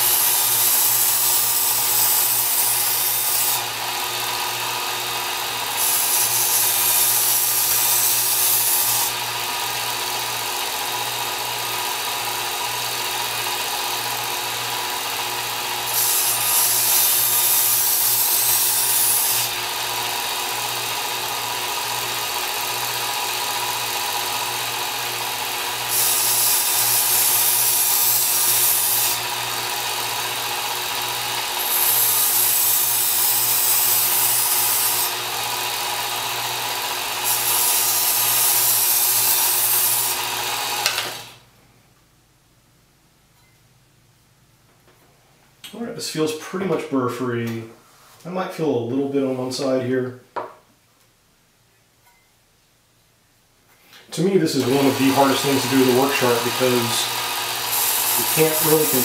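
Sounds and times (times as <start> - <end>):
knife grinding on abrasive belt: 0.0 - 10.9, 13.3 - 41.3, 54.5 - 59.0
belt sharpener motor humming: 0.0 - 41.4, 54.5 - 59.0.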